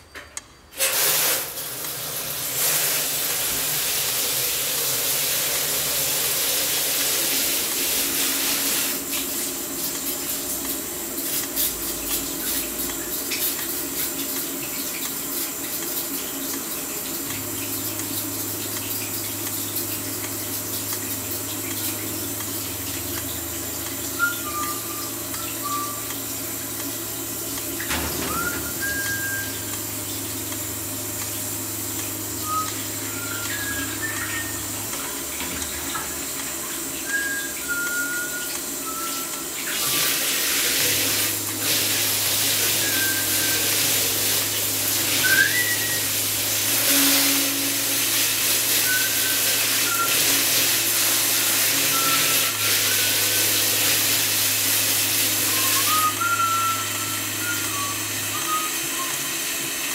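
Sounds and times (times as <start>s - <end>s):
running water: 0.8s - 59.9s
person whistling short notes: 24.2s - 26.2s, 27.9s - 29.8s, 32.4s - 34.7s, 37.0s - 40.1s, 42.7s - 44.1s, 45.2s - 46.1s, 48.8s - 50.4s, 51.8s - 53.3s, 55.4s - 59.4s.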